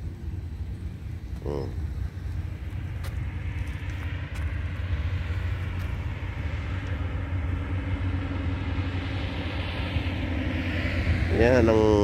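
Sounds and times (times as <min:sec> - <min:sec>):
low outdoor rumble: 0:00.0 - 0:12.0.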